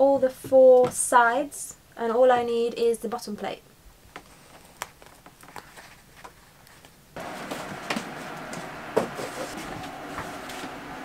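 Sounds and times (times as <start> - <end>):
fabric and foam cushion rustling: 7.2 - 11.0.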